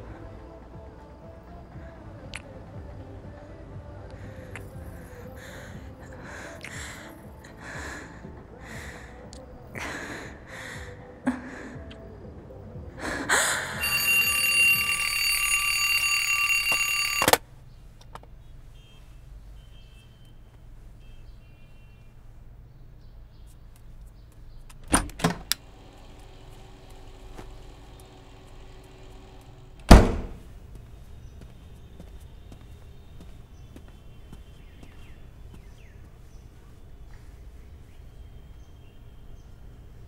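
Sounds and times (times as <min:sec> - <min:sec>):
alarm clock ringing: 0:13.8 - 0:17.4.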